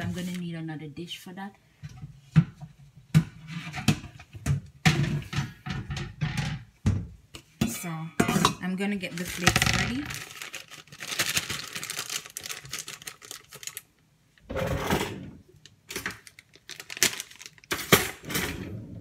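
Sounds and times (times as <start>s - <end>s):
plastic bag crinkling: 9.0s - 14.0s, 15.6s - 18.2s.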